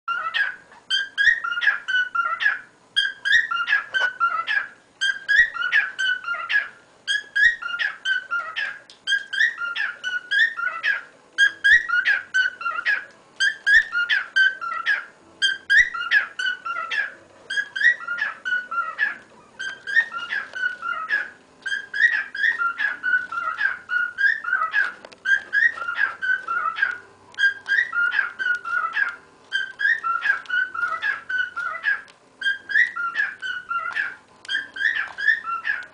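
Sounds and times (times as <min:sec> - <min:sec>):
cockatiel whistling song: 0:00.1 - 0:35.9.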